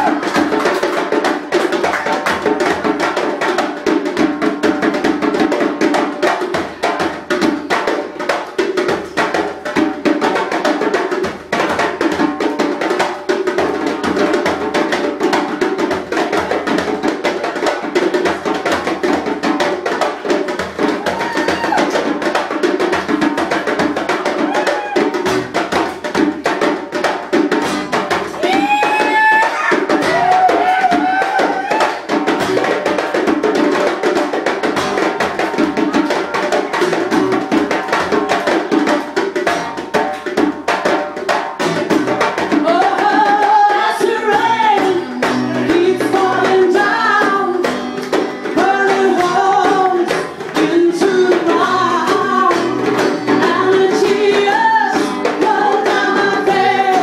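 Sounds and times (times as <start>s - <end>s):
djembe hand drums: 0.0s - 57.0s
strummed acoustic guitar: 32.1s - 33.7s, 41.6s - 57.0s
woman singing: 42.5s - 47.8s, 48.5s - 57.0s.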